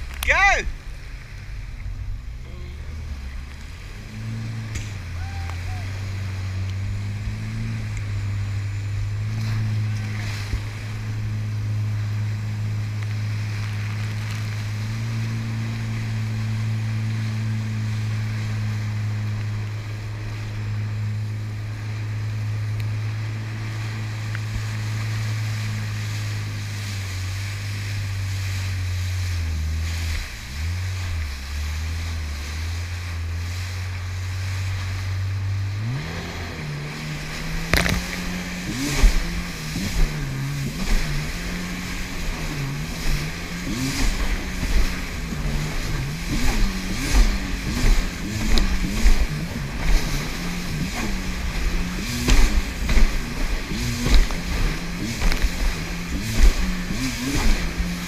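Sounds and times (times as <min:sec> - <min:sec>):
jet ski engine: 0:00.0 - 0:58.0
wind and water rushing: 0:00.0 - 0:58.0.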